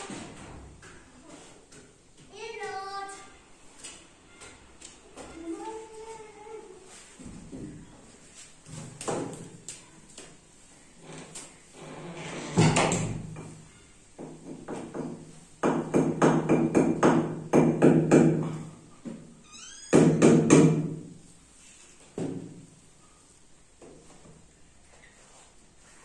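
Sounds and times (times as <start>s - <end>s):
hammer striking nail into wall: 14.4s - 18.6s, 19.9s - 21.0s.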